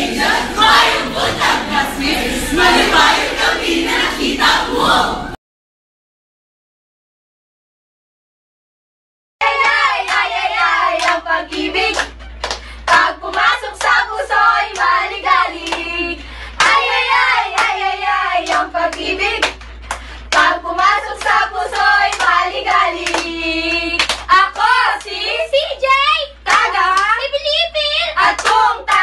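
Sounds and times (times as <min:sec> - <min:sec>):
group singing loudly: 0:00.0 - 0:05.4, 0:09.4 - 0:12.1, 0:12.9 - 0:19.5, 0:20.3 - 0:25.3
hands clapping: 0:09.5 - 0:14.0, 0:14.7 - 0:14.9, 0:15.6 - 0:15.9, 0:16.6 - 0:16.9, 0:18.4 - 0:25.2, 0:26.5 - 0:27.1, 0:28.3 - 0:29.0.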